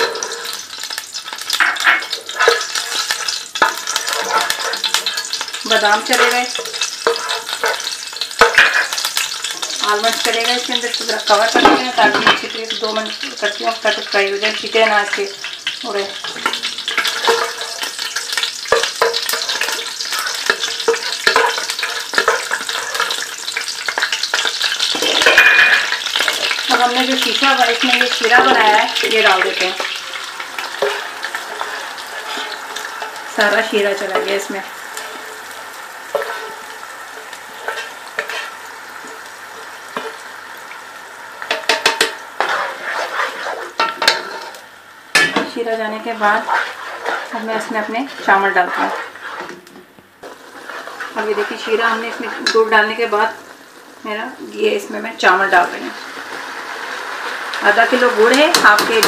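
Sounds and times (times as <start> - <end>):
spoon scraping pot: 0.0 - 0.6, 1.6 - 12.5, 16.2 - 38.6, 41.5 - 44.6, 46.0 - 53.2
spices sizzling in hot oil: 0.0 - 59.0.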